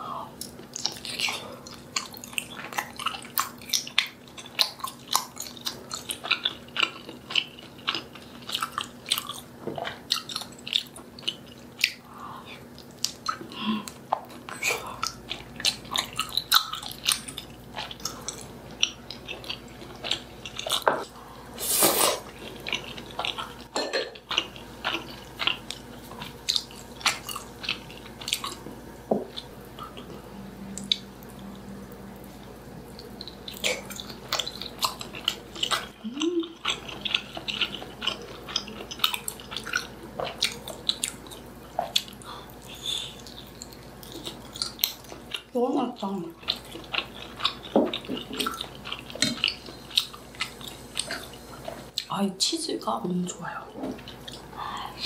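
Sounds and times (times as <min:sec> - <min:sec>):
chewing: 0:00.4 - 0:21.2, 0:22.1 - 0:52.1, 0:53.7 - 0:55.0
longer louder noise: 0:29.5 - 0:34.3.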